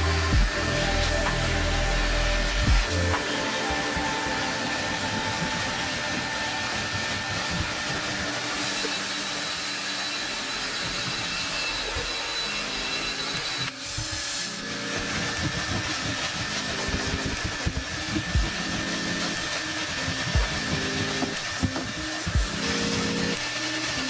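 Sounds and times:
tool rubbing over carpet: 13.8s - 24.0s.

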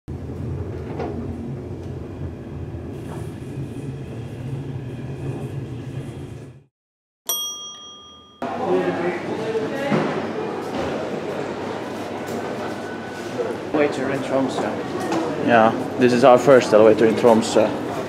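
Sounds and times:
elevator hum and rumble: 0.1s - 6.7s
elevator ding: 7.3s - 8.6s.

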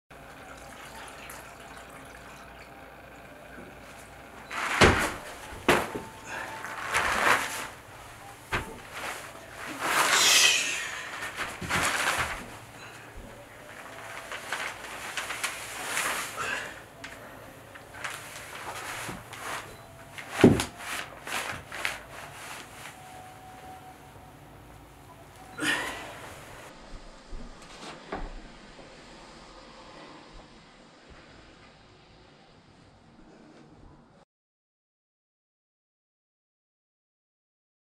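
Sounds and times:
brush swishing across paper: 8.9s - 12.5s.

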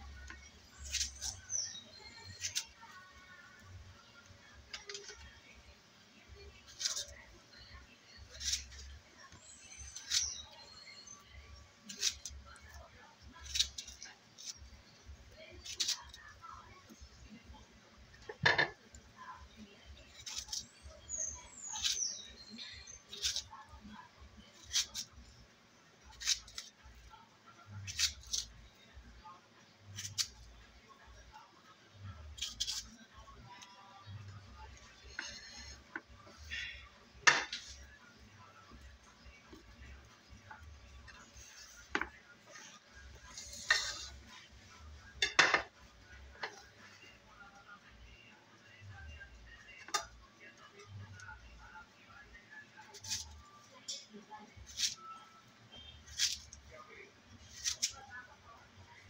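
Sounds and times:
knife slicing plantain: 0.4s - 2.8s, 6.7s - 7.2s, 8.2s - 8.9s, 9.6s - 10.5s, 11.8s - 12.8s, 13.4s - 14.6s, 15.6s - 16.2s, 20.1s - 20.7s, 21.7s - 22.0s, 23.0s - 23.5s, 24.5s - 25.1s, 26.1s - 26.8s, 27.8s - 28.5s, 30.0s - 30.4s, 32.3s - 33.0s, 39.5s - 44.3s, 54.6s - 55.2s, 56.0s - 56.6s, 57.4s - 58.0s
knife and dishes clattering: 45.2s - 45.7s.

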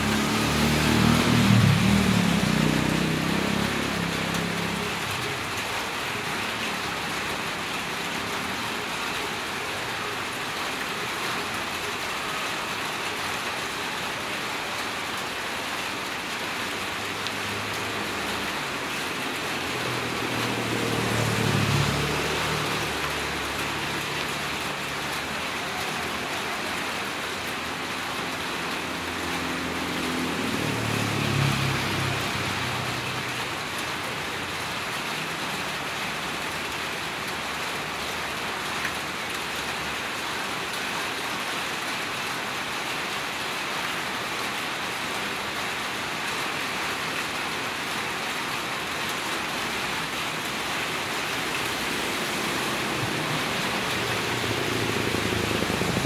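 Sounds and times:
vehicle engine passing: 0.0s - 4.8s, 19.2s - 24.2s, 29.0s - 33.0s, 50.5s - 56.0s
steady rain falling: 0.0s - 56.0s.

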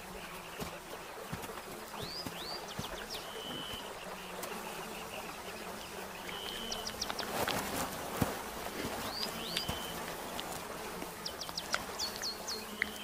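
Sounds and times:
bird calling: 0.0s - 7.4s, 8.8s - 10.5s
flies buzzing: 0.0s - 13.0s.

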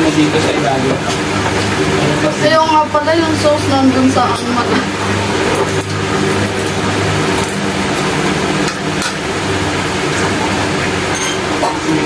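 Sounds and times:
electric fan motor hum: 0.0s - 12.0s
tongs clinking against dishes: 11.1s - 11.8s.

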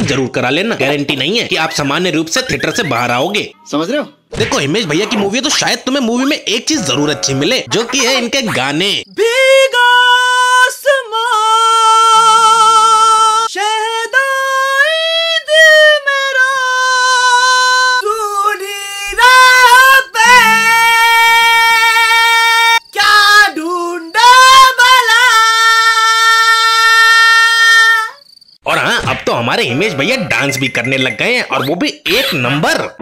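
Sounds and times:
high voice singing with vibrato: 6.7s - 7.8s, 9.1s - 28.2s.

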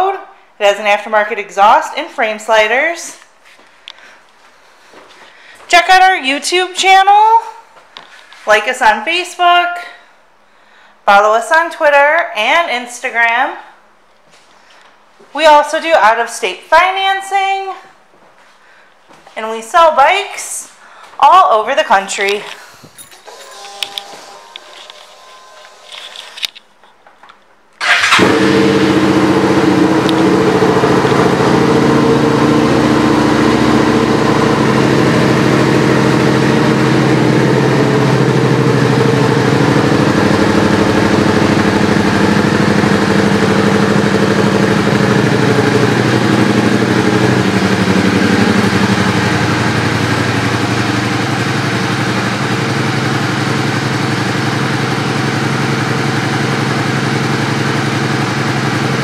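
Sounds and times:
motorcycle engine starting and idling: 23.0s - 26.6s, 27.8s - 59.0s.

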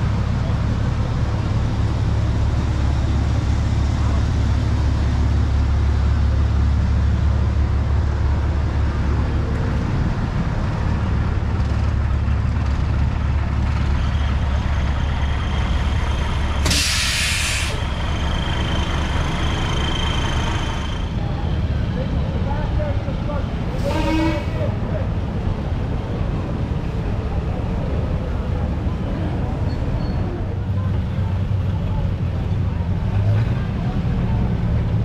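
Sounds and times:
truck engine idling: 0.0s - 35.0s
air brakes hissing: 16.6s - 17.9s.

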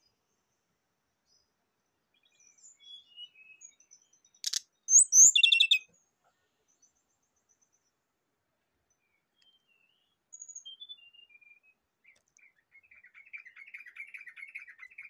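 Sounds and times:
bird singing: 2.1s - 5.9s, 8.9s - 15.0s.

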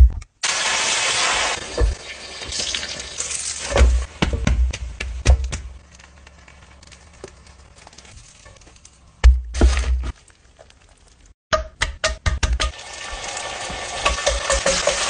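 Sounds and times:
egg sizzling in frying pan: 0.4s - 4.2s, 12.7s - 15.0s.

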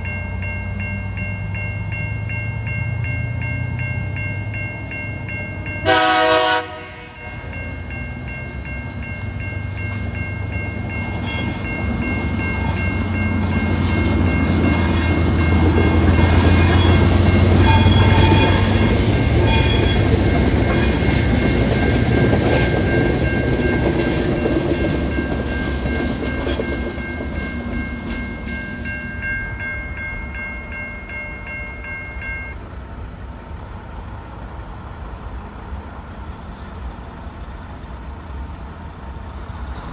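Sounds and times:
crossing warning bells ringing: 0.0s - 34.1s
diesel locomotive engine drone: 0.0s - 39.9s
train horn blast: 5.8s - 7.5s, 16.4s - 20.1s
train wheels clicking on rails: 7.4s - 29.3s.

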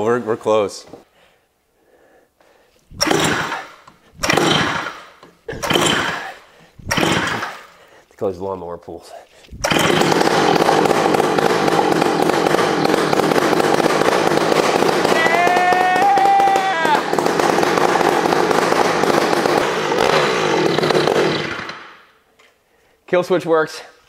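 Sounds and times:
two-stroke engine crackling exhaust: 3.0s - 3.6s, 4.2s - 6.3s, 6.9s - 7.7s, 9.6s - 15.9s, 16.7s - 21.9s
person shouting: 15.1s - 17.2s.

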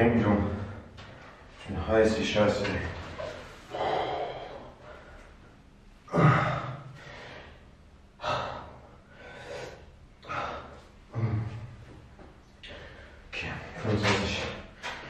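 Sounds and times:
man breathing heavily: 3.3s - 13.4s.

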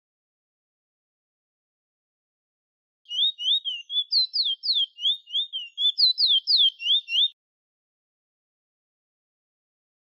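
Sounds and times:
finch singing whistled notes: 3.1s - 7.4s.

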